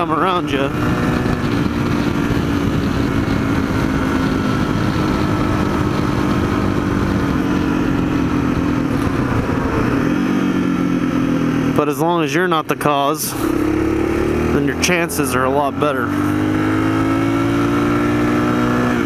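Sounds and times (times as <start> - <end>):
wind rumble on microphone: 0.0 - 11.5
motorcycle engine cruising: 0.0 - 19.0.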